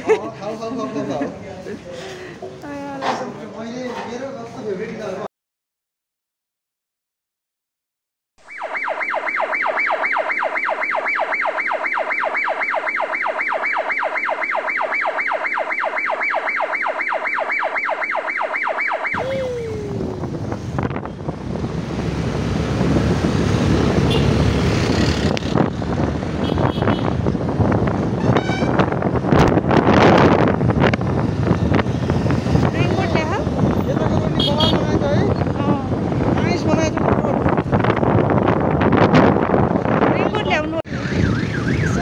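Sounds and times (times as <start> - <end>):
loud pulsing siren-like tone: 8.4 - 20.0, 40.9 - 42.0
motor scooter riding through traffic: 19.2 - 42.0
wind buffeting microphone: 19.2 - 42.0.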